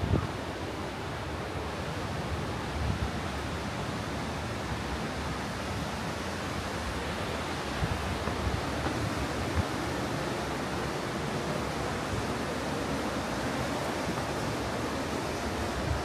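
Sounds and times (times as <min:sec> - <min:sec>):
wind on microphone: 0:00.0 - 0:00.6, 0:07.5 - 0:16.0.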